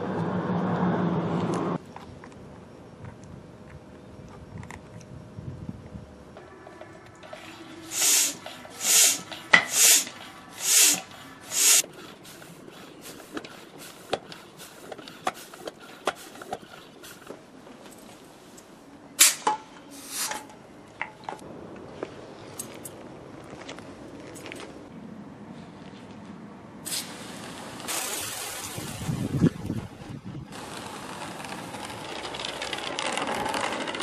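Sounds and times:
bicycle pump hissing strokes: 7.4s - 17.3s.

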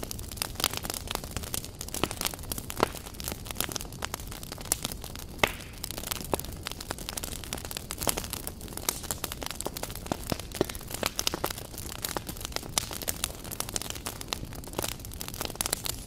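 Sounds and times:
wood fire crackling: 0.0s - 16.0s.

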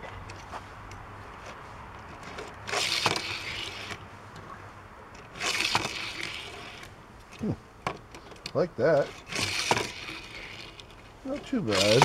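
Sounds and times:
toy truck wheels rolling on track: 1.4s - 4.0s, 5.1s - 12.0s.

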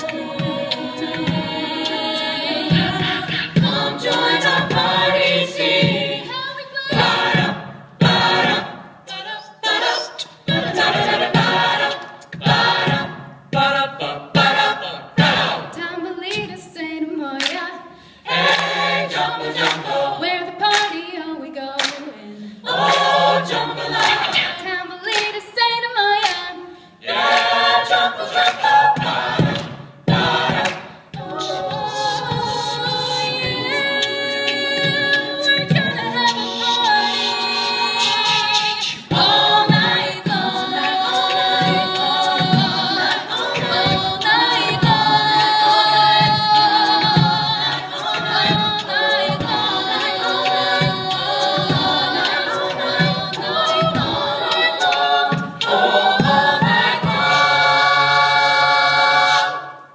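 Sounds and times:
a cappella vocal ensemble singing: 0.0s - 59.9s.

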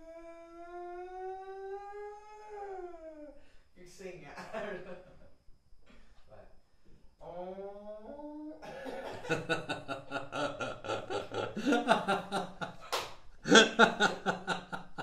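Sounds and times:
person snickering and chuckling: 8.6s - 15.0s.

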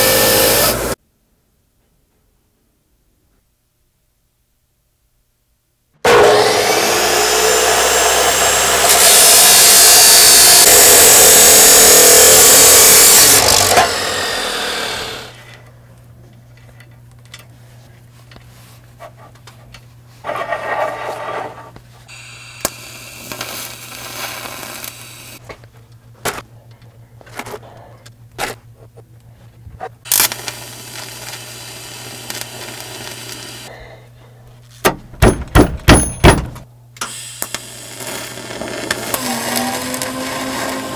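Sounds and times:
chop saw grinding metal: 6.1s - 15.5s
metal knocks: 34.9s - 36.7s.

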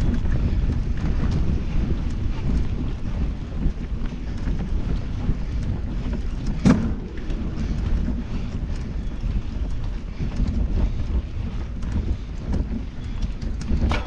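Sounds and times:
bike rumbling over dirt trail: 0.0s - 14.0s.

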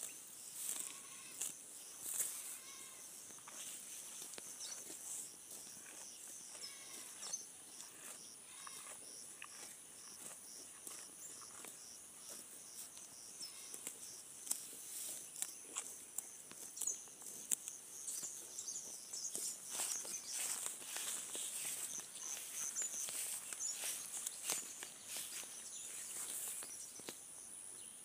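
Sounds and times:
insects chirping: 0.0s - 28.0s
cow tearing grass: 0.6s - 2.8s, 3.4s - 12.9s, 13.7s - 15.9s, 19.3s - 26.6s.

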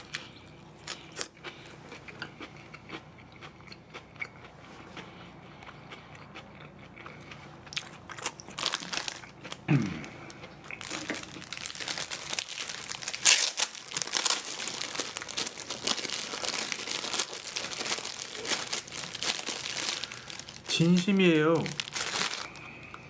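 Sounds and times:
plastic wrapping crinkling: 8.2s - 9.6s, 10.7s - 22.9s.

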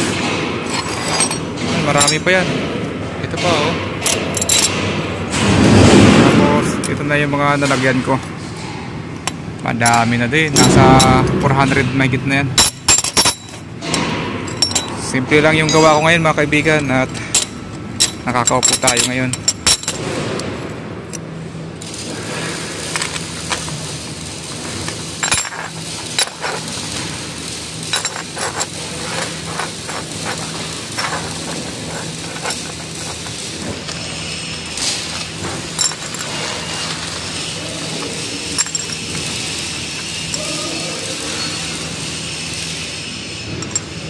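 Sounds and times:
steady low hum: 0.0s - 44.0s
steel plates clinking and scraping: 0.6s - 2.4s, 12.6s - 20.2s, 22.0s - 42.5s.

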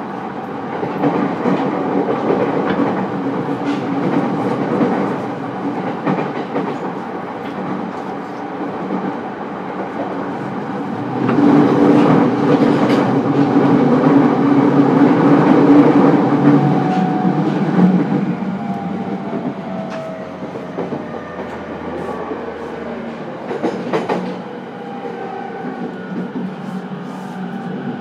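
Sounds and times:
train wheels on rail: 0.0s - 28.0s
rail-joint clicks: 19.8s - 21.6s, 23.5s - 24.4s.

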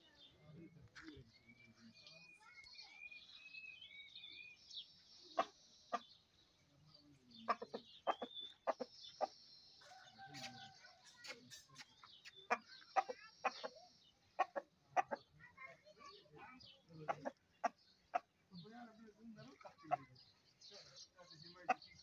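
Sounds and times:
rooster clucking: 7.5s - 9.3s, 14.4s - 15.2s.

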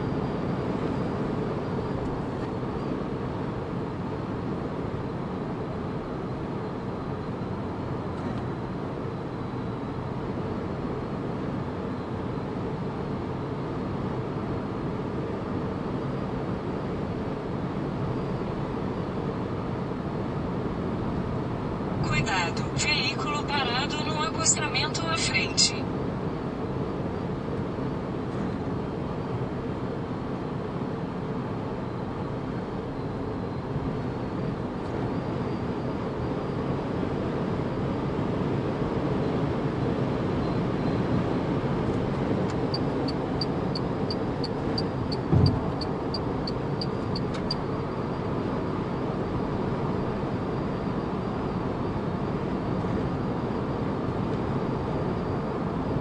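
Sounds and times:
thump: 45.3s - 45.6s.

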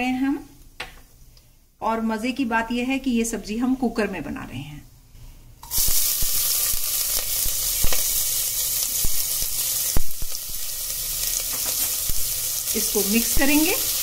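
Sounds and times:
onion sizzling in hot oil: 5.6s - 14.0s
crackling pops: 5.9s - 8.2s, 9.0s - 10.7s.

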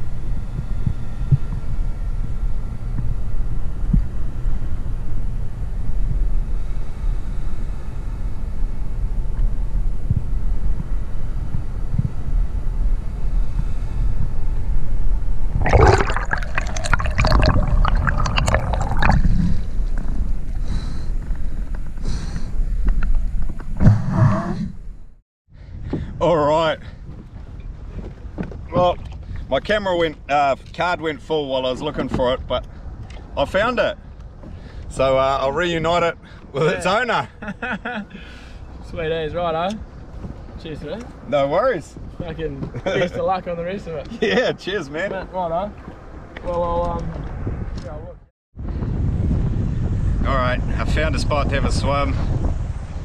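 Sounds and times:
muffled underwater rushing: 15.5s - 22.0s
water splashing: 15.6s - 20.6s.

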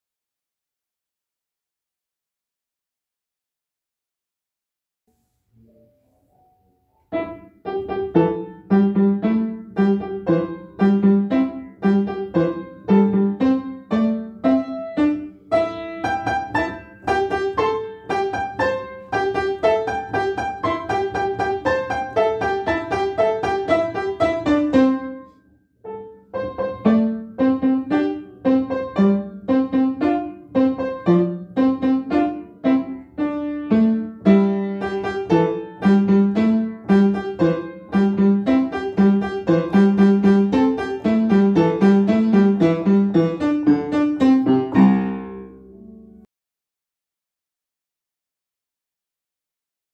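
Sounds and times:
upright piano playing: 6.4s - 46.3s.

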